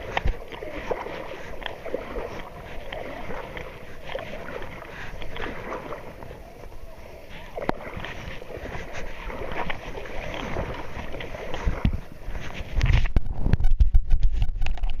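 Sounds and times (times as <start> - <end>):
wind on microphone: 0.0 - 15.0
microphone handling rumble: 10.4 - 15.0.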